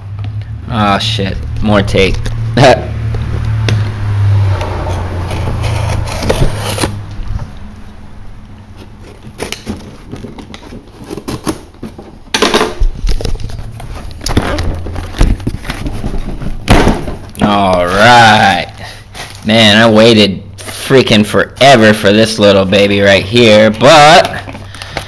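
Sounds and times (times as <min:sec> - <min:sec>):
low hum: 0:00.0 - 0:09.2
cardboard box being opened: 0:05.3 - 0:07.1, 0:08.8 - 0:12.0, 0:13.0 - 0:18.2.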